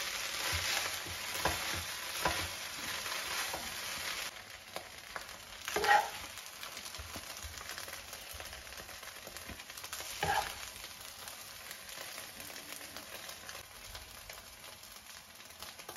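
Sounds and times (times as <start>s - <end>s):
rice sizzling in a frying pan: 0.0s - 15.9s
metal spoon scraping a pan: 5.8s - 6.3s, 10.1s - 10.7s.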